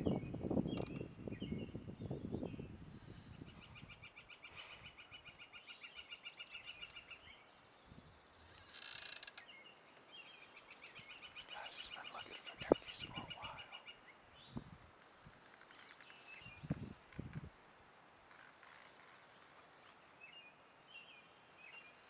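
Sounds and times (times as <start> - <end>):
songbird trilling: 10.3 - 14.2.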